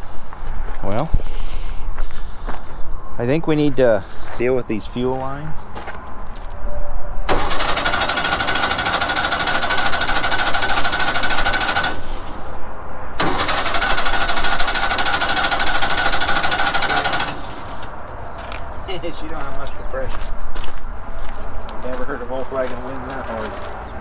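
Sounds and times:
car engine cranking on starter: 7.3 - 12.2, 13.2 - 17.8.

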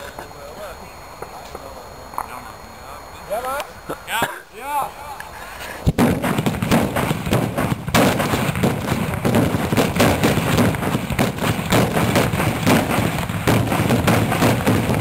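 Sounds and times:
loud bangs and cracks: 5.9 - 15.0.

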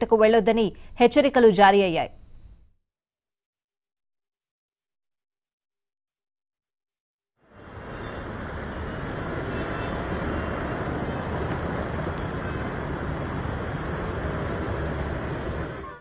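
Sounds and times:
traffic rushing: 7.4 - 16.0
water rushing: 7.5 - 16.0.

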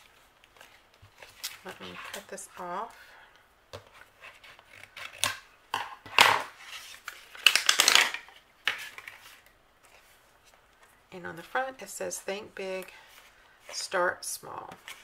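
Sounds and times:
plastic packaging crinkling: 6.8 - 9.4.

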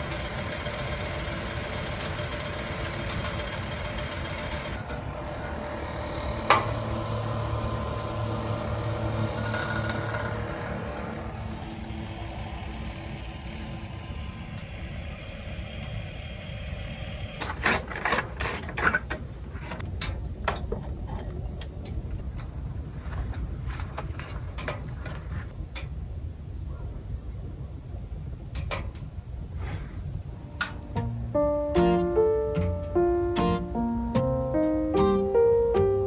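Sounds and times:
low hum: 4.7 - 18.2, 29.7 - 36.0
faint steady tones: 30.3 - 36.0.

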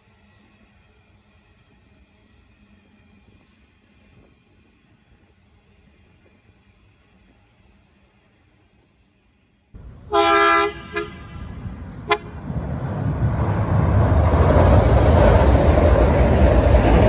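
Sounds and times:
train rumbling: 0.0 - 17.0
train horn blast: 10.0 - 12.4.

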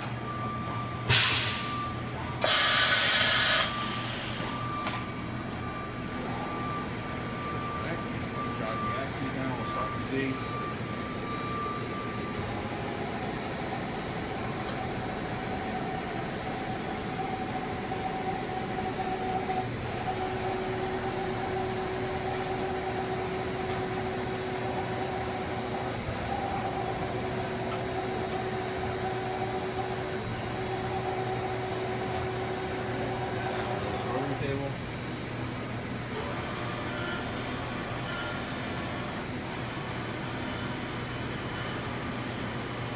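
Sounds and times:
constant machine hum: 0.0 - 42.9.

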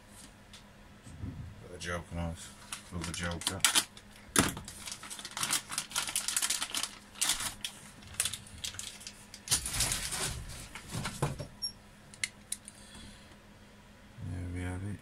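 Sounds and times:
packaging rustling: 2.6 - 11.2
plastic parts clicking and clattering: 3.0 - 10.3.

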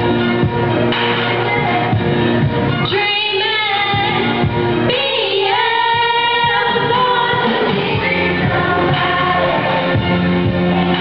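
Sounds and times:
girls choir singing through microphones: 2.9 - 11.0.

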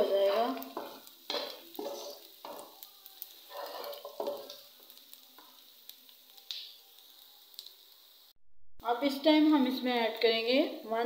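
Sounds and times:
spatula scraping frying pan: 0.0 - 2.8, 3.4 - 4.6
food sizzling in a pan: 0.0 - 11.0.

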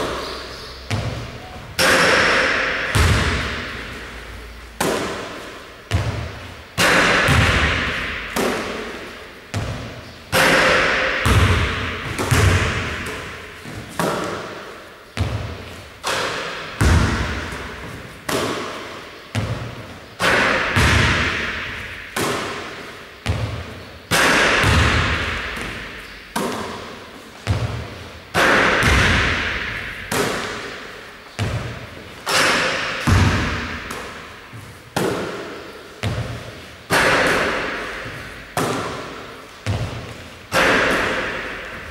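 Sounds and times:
basketball bouncing on wooden floor: 0.9 - 1.5, 2.9 - 3.9, 5.9 - 6.4, 7.0 - 8.8, 11.2 - 14.4, 15.2 - 18.6, 20.7 - 22.5, 24.5 - 26.8, 27.4 - 30.6, 33.0 - 35.4, 36.0 - 36.4, 37.0 - 41.2.

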